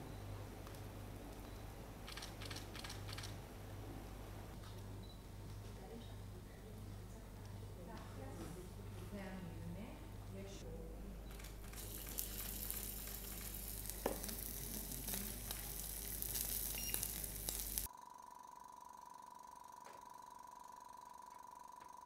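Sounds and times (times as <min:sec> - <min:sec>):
steady hum with high whine: 0:00.0 - 0:22.0
steak sizzling in a frying pan: 0:11.8 - 0:17.9.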